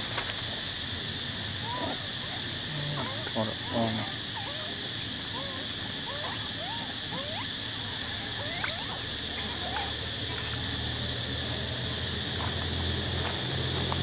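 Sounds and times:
insect drone: 0.0 - 14.0
monkey shrill squeal: 1.6 - 4.7, 5.3 - 7.6, 8.2 - 9.9
monkeys cooing: 1.6 - 10.1.

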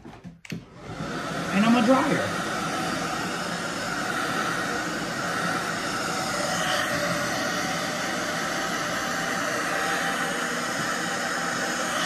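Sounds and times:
hair dryer blowing: 0.5 - 12.0.

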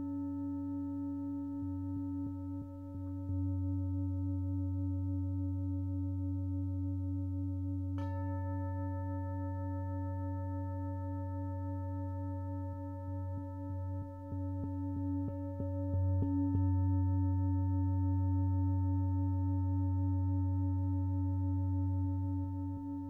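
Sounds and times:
singing bowl ringing: 0.0 - 23.0
singing bowl struck: 7.9 - 20.1.

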